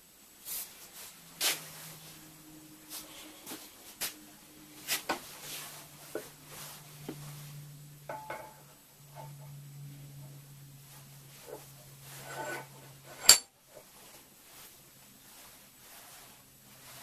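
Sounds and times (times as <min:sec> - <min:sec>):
low hum: 0:01.0 - 0:13.8
metal parts knocking and clinking: 0:13.2 - 0:13.5.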